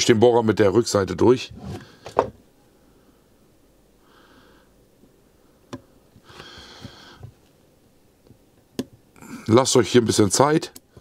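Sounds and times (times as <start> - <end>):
person sniffing: 6.2 - 7.2.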